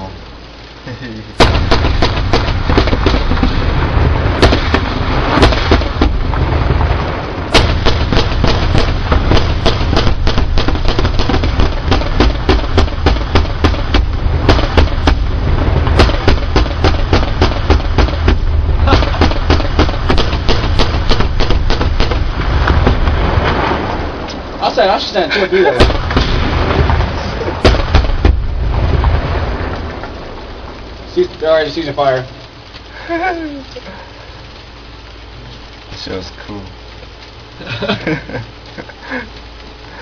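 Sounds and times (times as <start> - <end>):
low rumble: 0.0 - 40.0
rapid cannon fire: 1.4 - 24.2, 25.7 - 30.4.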